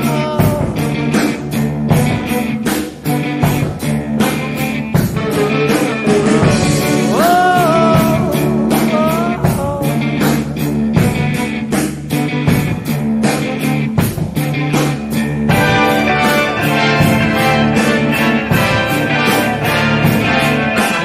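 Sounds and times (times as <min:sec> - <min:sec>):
rock music with guitar: 0:00.0 - 0:21.0.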